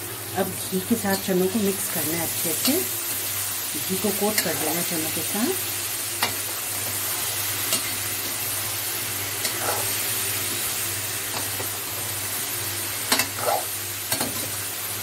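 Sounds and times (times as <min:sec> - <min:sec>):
chickpeas sizzling in oil: 0:00.0 - 0:15.0
metal spatula scraping pan: 0:09.4 - 0:10.0.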